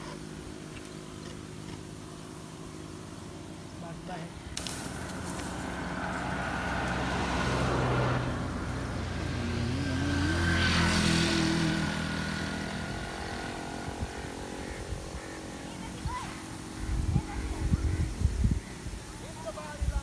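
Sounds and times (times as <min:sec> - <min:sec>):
motorcycle passing: 0:00.0 - 0:20.0
jeep driving by: 0:04.9 - 0:14.4.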